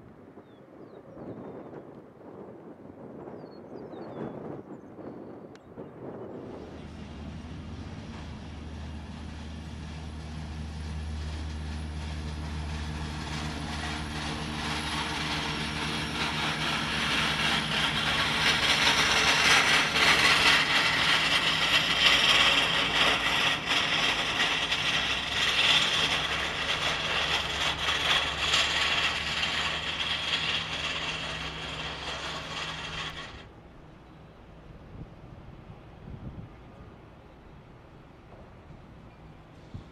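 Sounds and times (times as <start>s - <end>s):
jet engines roaring: 5.5s - 33.9s.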